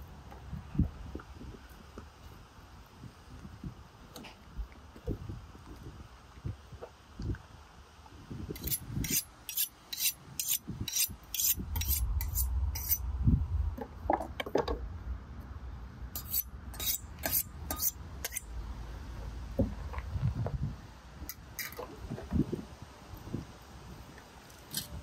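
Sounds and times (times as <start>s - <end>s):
steel blades scraping together: 8.6s - 13.0s, 16.2s - 18.5s.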